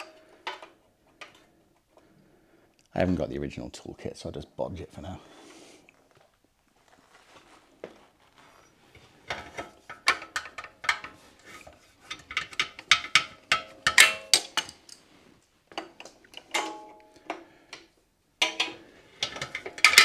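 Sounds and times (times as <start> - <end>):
metal tools clinking: 18.4 - 20.0.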